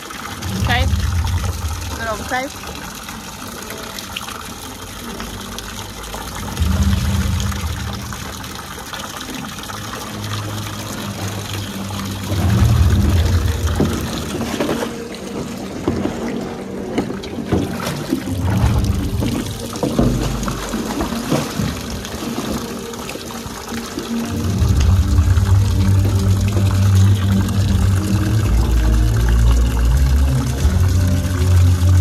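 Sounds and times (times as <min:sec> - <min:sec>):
hose water splashing into tub: 0:00.0 - 0:32.0
low muffled rumbles: 0:00.4 - 0:02.6, 0:06.5 - 0:08.5, 0:11.6 - 0:14.6, 0:18.4 - 0:20.6, 0:24.4 - 0:32.0.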